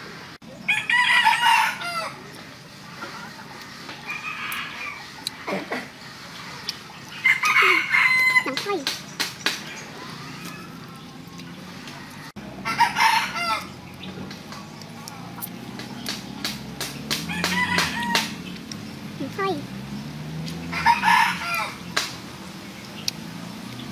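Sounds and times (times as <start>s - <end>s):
rooster crowing: 0.7s - 2.2s, 4.0s - 5.1s, 7.2s - 8.6s, 11.9s - 13.7s, 17.3s - 18.4s, 20.7s - 21.9s.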